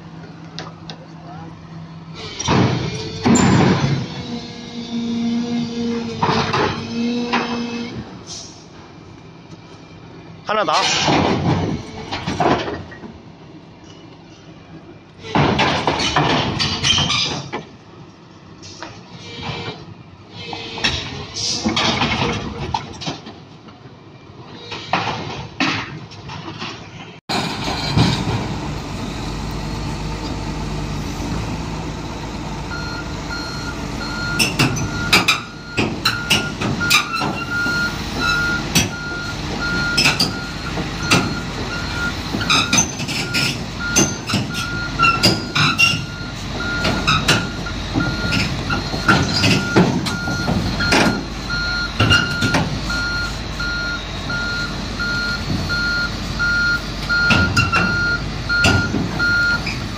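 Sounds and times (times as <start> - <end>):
steel tracks clanking: 2.1 - 8.9, 10.5 - 13.2, 13.8 - 17.8, 24.4 - 59.9
excavator diesel engine running: 26.5 - 59.9.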